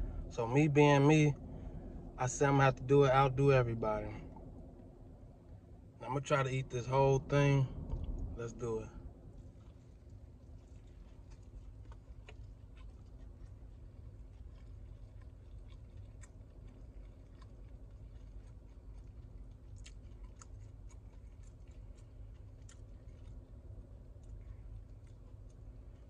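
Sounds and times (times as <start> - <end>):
low steady hum: 0.0 - 26.0
chewing crunchy food: 9.0 - 26.0.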